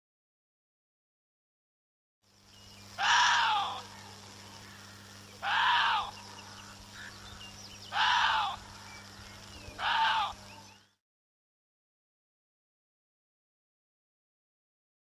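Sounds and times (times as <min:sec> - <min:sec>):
deer barking: 0:03.0 - 0:04.1, 0:05.4 - 0:06.1, 0:07.9 - 0:08.6, 0:09.8 - 0:10.4.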